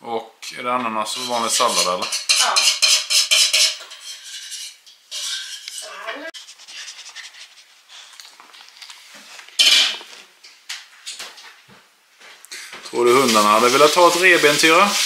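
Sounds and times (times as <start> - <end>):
utensils clinking against dishes: 0.4 - 6.3.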